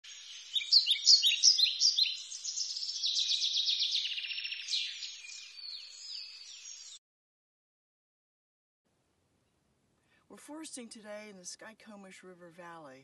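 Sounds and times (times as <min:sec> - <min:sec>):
robin singing: 0:00.0 - 0:07.0.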